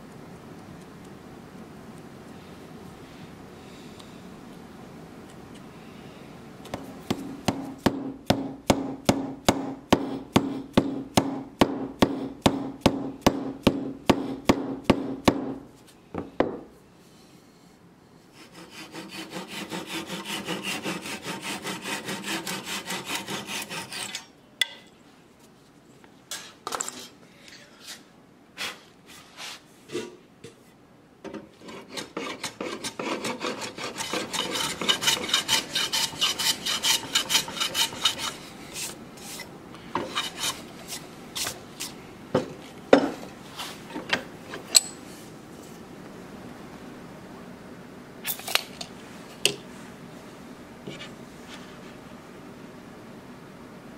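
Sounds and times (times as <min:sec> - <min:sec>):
handsaw cutting wood: 0:18.4 - 0:24.2, 0:31.6 - 0:39.0, 0:40.0 - 0:40.6.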